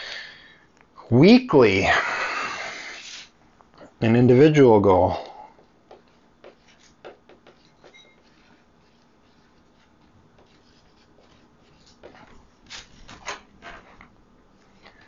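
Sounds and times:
marker scratching on paper: 2.9s - 3.3s, 5.9s - 12.8s
marker squeak: 6.8s - 9.4s
paper rustling: 7.6s - 15.0s.

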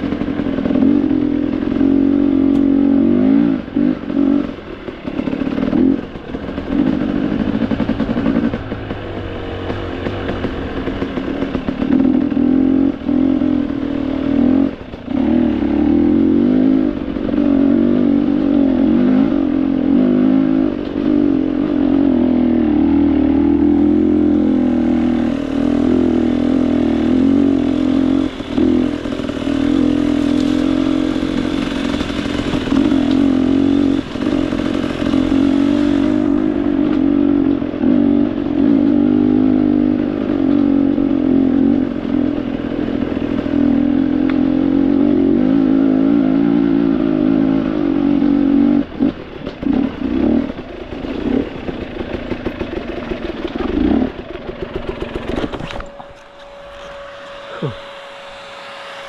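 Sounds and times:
off-road motorcycle engine revving: 0.0s - 59.0s
bike clattering over rough ground: 51.6s - 57.5s.

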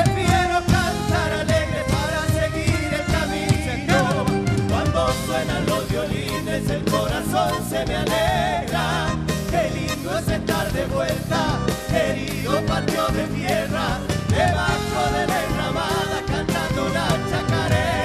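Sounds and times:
drums: 0.0s - 18.0s
men singing: 0.0s - 18.0s.

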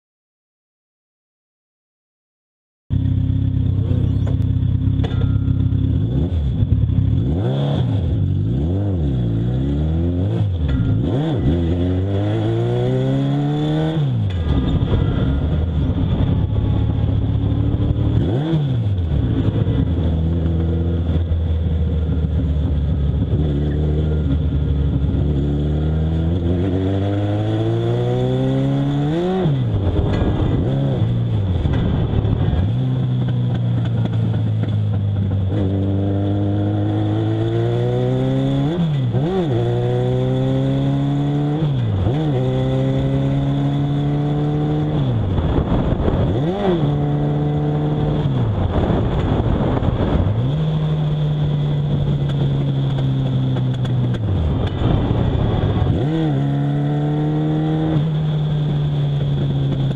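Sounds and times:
race car engine revving: 2.9s - 59.9s.

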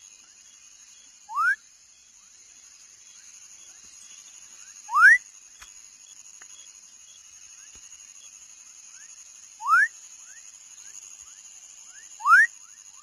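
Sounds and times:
night insects droning: 0.0s - 13.0s
frog calling: 4.9s - 5.2s, 9.6s - 10.4s, 11.9s - 13.0s.

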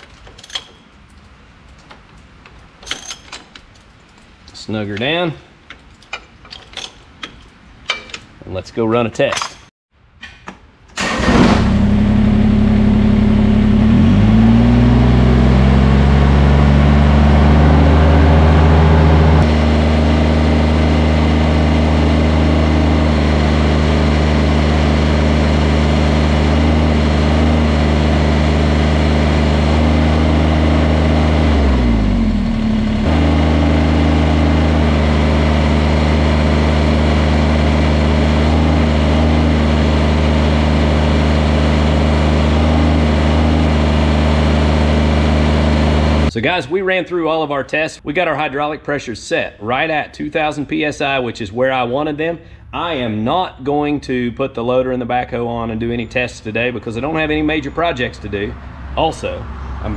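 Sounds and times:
diesel tractor engine running: 11.0s - 46.3s.

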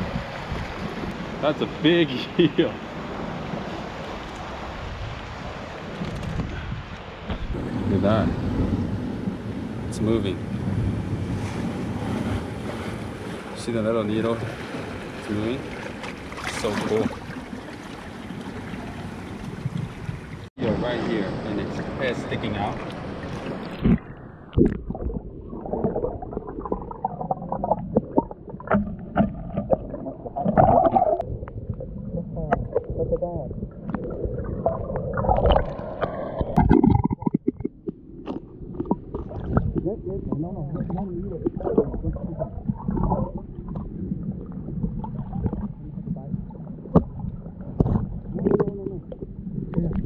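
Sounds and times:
underwater water sloshing: 11.2s - 20.5s, 21.6s - 50.0s.

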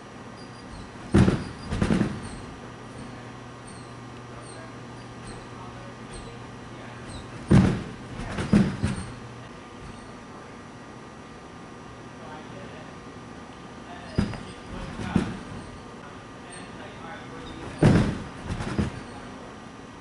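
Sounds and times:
feet thumping on trampoline: 0.4s - 10.2s, 14.1s - 16.0s, 17.3s - 19.4s.

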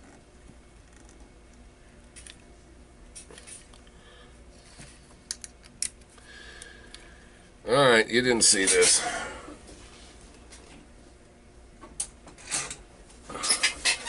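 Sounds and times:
small parts clicking and tapping: 5.3s - 6.0s.

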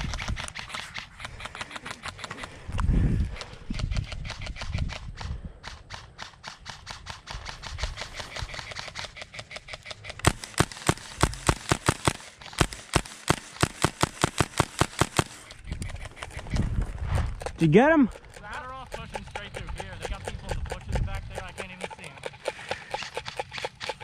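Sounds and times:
airsoft rifle rapid shots: 0.0s - 16.6s, 17.4s - 24.0s.

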